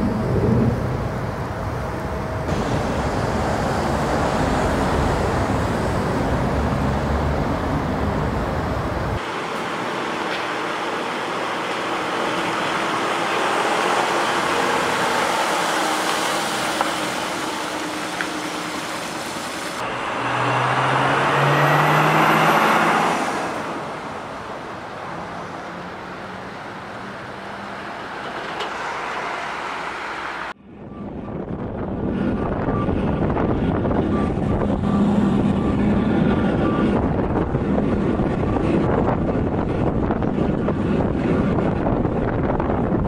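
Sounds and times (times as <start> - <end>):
tyre and road noise: 0.0 - 43.0
truck diesel engine running: 2.5 - 22.9.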